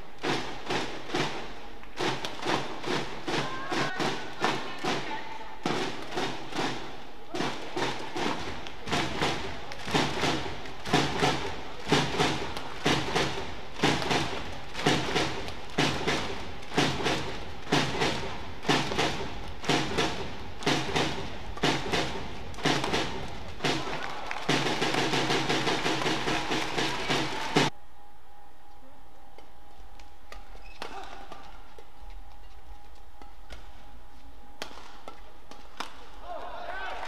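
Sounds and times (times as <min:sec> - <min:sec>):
steady thumping beat: 0:00.0 - 0:27.8
low steady hum: 0:27.0 - 0:36.3.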